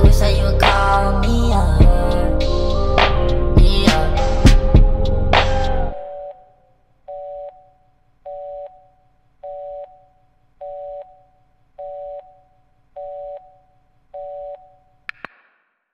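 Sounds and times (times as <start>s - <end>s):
music: 0.0s - 6.0s
telephone line beeps: 5.9s - 14.9s.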